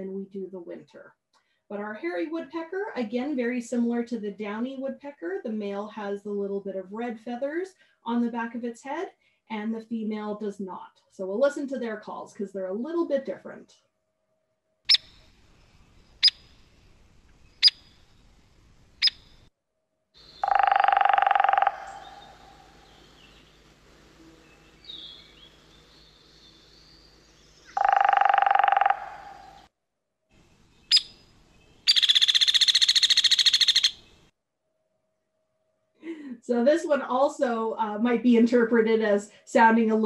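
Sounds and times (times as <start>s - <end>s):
woodpecker peek calls: 14.9s - 18.2s, 19.0s - 19.5s, 20.2s - 23.6s, 24.6s - 26.9s, 27.5s - 29.7s, 30.6s - 34.3s
woodpecker rattling whinny: 20.4s - 23.3s, 31.8s - 34.1s.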